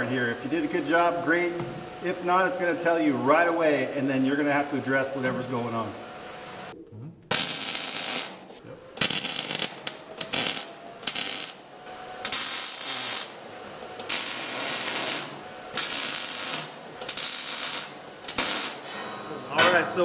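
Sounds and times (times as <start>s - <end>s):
arc welder crackle: 7.3s - 18.9s.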